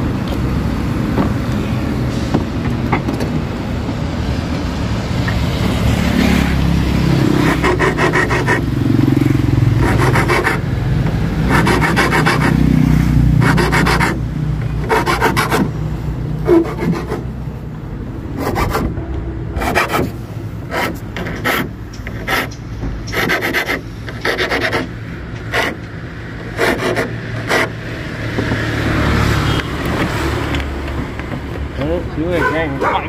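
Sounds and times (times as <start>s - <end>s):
hand file rasping metal: 7.4s - 8.8s, 9.8s - 10.7s, 11.5s - 12.7s, 13.4s - 14.2s, 14.8s - 15.7s, 16.4s - 17.3s, 19.6s - 25.8s, 26.5s - 27.8s.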